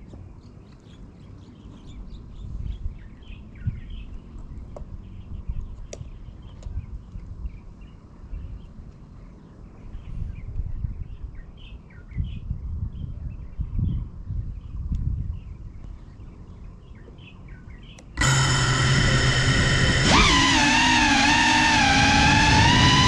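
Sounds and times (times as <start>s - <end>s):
small birds chirping: 0.0s - 21.5s.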